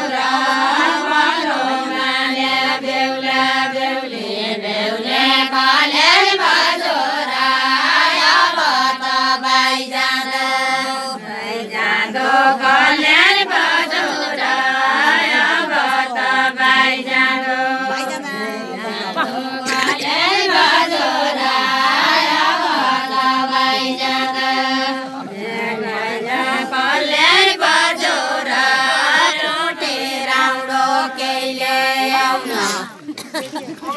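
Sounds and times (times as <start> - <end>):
women singing folk song: 0.0 - 33.9.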